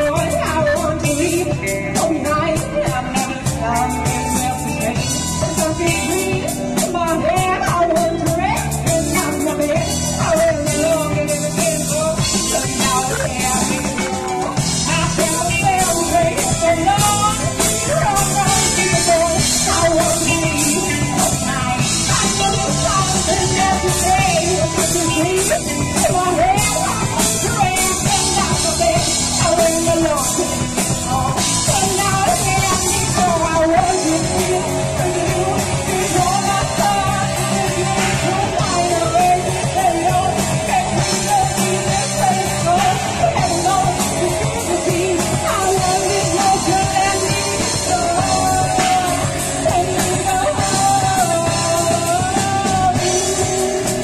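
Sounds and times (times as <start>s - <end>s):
drum kit with cymbals: 0.0s - 54.0s
electric bass: 0.0s - 54.0s
electric guitars: 0.0s - 54.0s
woman singing lead: 0.0s - 54.0s.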